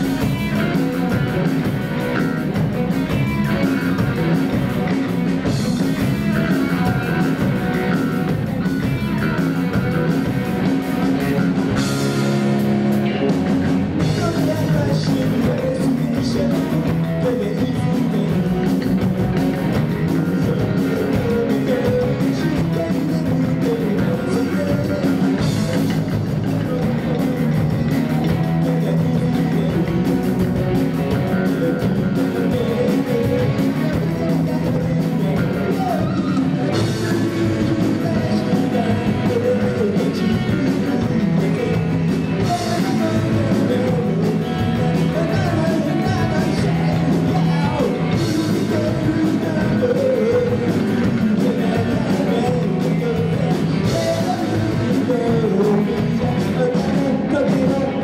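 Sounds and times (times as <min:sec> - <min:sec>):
drum kit: 0:00.0 - 0:58.0
electric bass: 0:00.0 - 0:58.0
electric guitar: 0:00.0 - 0:58.0
person singing lead vocal: 0:00.0 - 0:58.0.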